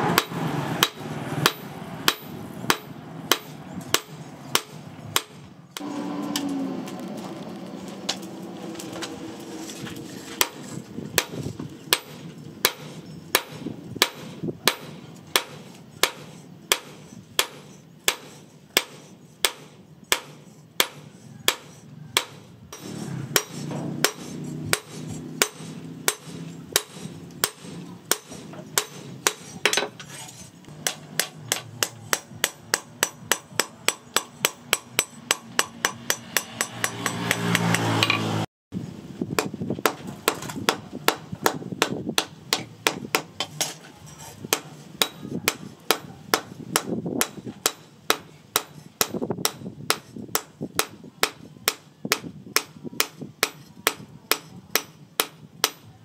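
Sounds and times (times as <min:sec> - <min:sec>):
hammer striking metal on anvil: 0:00.1 - 0:06.6, 0:11.2 - 0:30.0, 0:30.7 - 0:38.4, 0:44.5 - 0:55.9.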